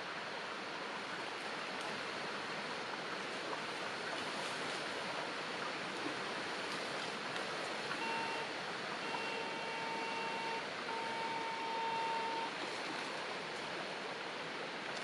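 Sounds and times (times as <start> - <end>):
background hiss: 5.8 - 15.0
metal detector tone: 8.0 - 12.5.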